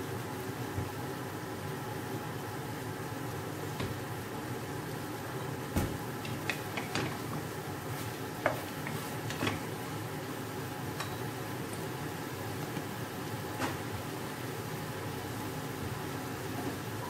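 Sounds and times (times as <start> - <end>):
steady background hiss: 0.0 - 17.0.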